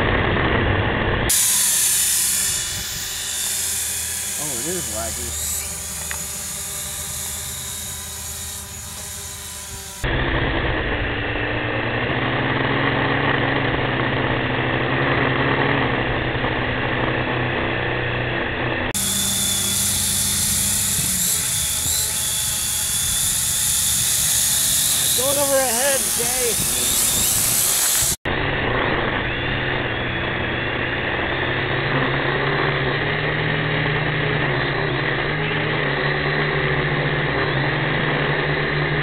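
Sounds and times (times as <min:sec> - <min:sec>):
drone propellers buzzing: 0:00.0 - 0:39.0.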